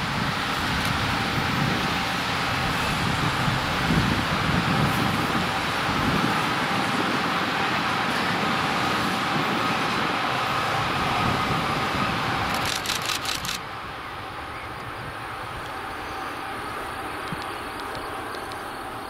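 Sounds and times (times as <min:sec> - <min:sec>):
high-speed train passing: 0:00.0 - 0:19.0
sharp clacks of train wheels: 0:12.4 - 0:13.6, 0:17.1 - 0:19.0.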